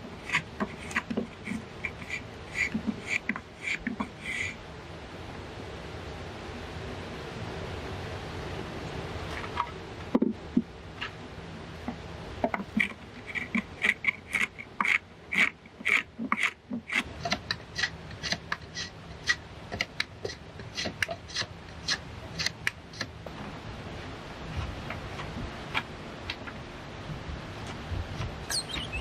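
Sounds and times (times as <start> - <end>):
hand plane scraping wood: 0.2 - 4.6, 12.5 - 23.1.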